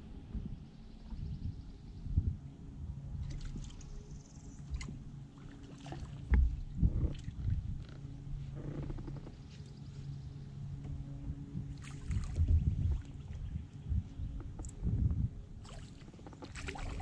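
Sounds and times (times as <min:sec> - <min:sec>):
steady low hum: 0:00.0 - 0:17.0
knocks and thumps in aluminum boat: 0:06.2 - 0:07.8.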